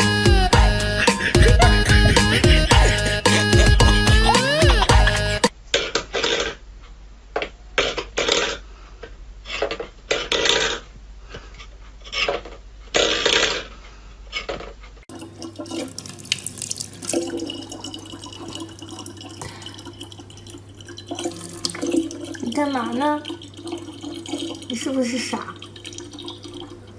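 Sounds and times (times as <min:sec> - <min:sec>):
water trickling into plastic bottle: 0:15.1 - 0:26.9.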